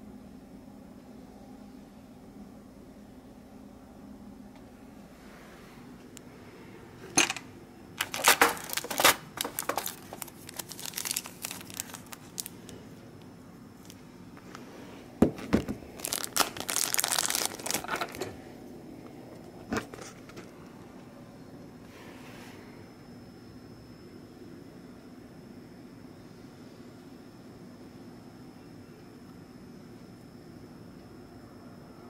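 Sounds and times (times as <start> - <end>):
plastic bags crinkling: 8.0 - 12.8, 15.2 - 18.3.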